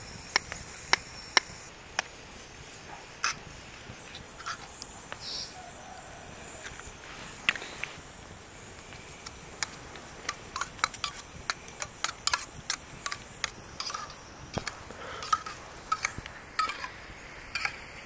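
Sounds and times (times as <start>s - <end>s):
spoon scraping a cooking pot: 9.2s - 17.9s.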